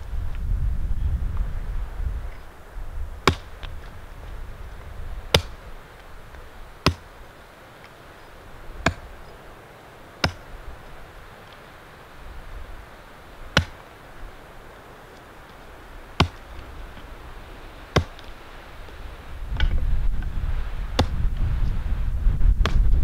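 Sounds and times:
wood being chopped: 3.2s - 4.0s, 4.8s - 7.2s, 8.8s - 9.3s, 10.2s - 10.6s, 13.5s - 14.0s, 15.1s - 17.1s, 17.9s - 20.3s, 20.9s - 21.4s, 22.6s - 22.9s.

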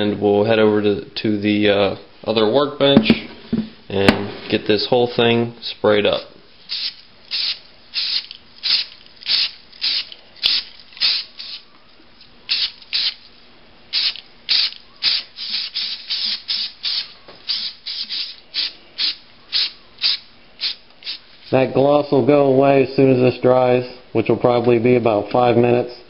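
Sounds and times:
aerosol spray can hissing: 6.7s - 11.6s, 12.5s - 13.2s, 13.9s - 21.2s.

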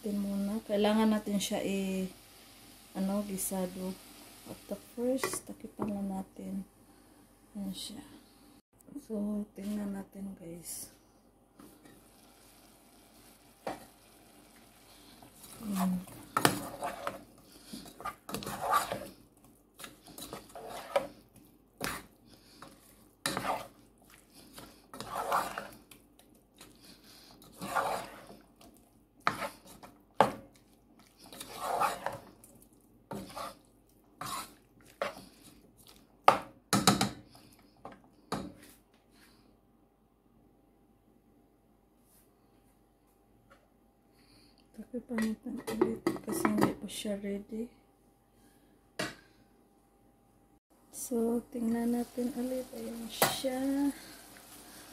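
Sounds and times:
spoon scraping metal saucepan: 15.4s - 19.2s, 19.8s - 21.2s, 21.8s - 23.8s, 24.5s - 25.8s, 27.3s - 28.4s, 29.2s - 30.3s, 31.2s - 32.3s, 33.1s - 33.6s, 34.2s - 35.2s.

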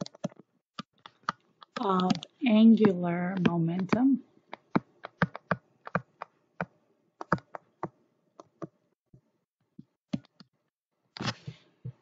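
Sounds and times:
pen taps on whiteboard: 2.8s - 8.0s.

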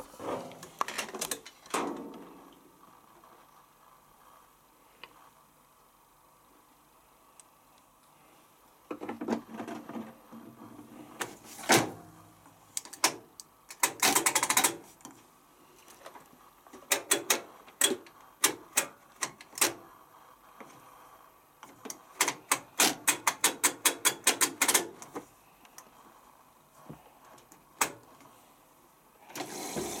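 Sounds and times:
plastic clicks and rattles: 12.8s - 14.8s.

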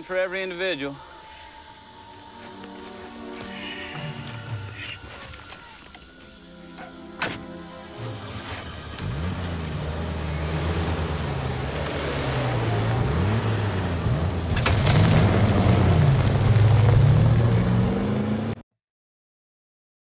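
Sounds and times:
tow truck engine revving: 7.0s - 18.6s.

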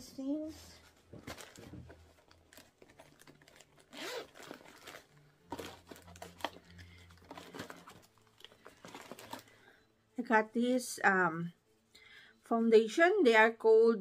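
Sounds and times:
packaging crinkling and rustling: 0.8s - 9.7s.

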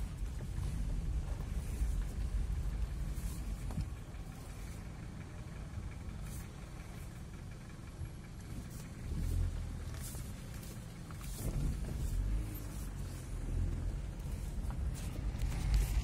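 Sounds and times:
car engine rumble from inside: 0.0s - 16.0s.

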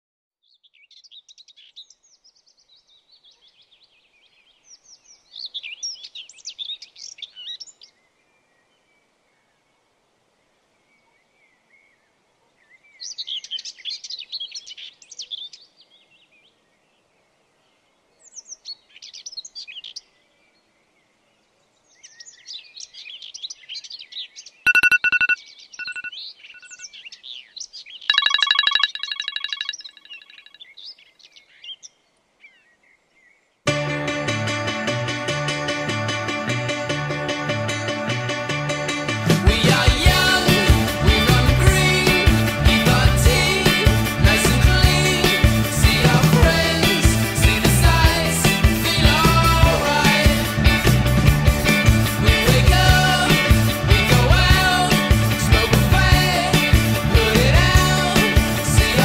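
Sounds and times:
phone alarm beeps and ringing: 24.7s - 26.9s, 28.1s - 30.5s
birds chirping and singing: 25.4s - 33.4s.

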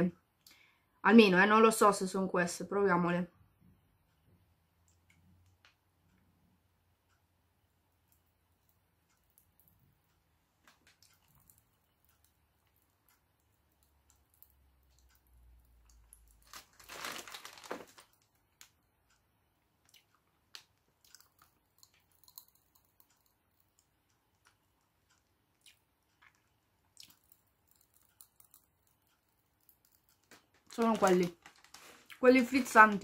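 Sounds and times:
person chewing: 10.7s - 17.2s, 19.8s - 30.7s
popping candy crackling: 15.7s - 18.8s, 25.6s - 33.0s.

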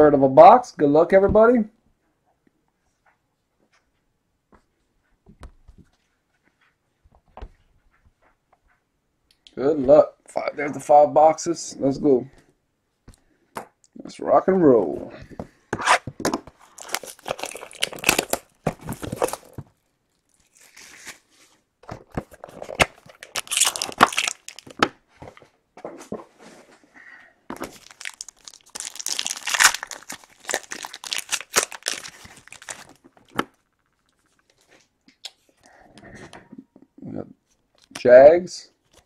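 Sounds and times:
wrappers ripping and crinkling: 16.6s - 21.4s, 22.5s - 24.8s, 27.6s - 34.6s.

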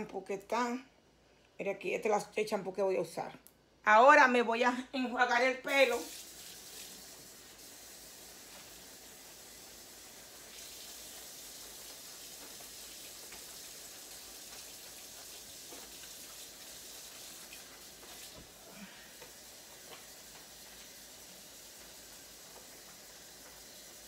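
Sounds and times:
faucet water running: 5.6s - 24.0s.

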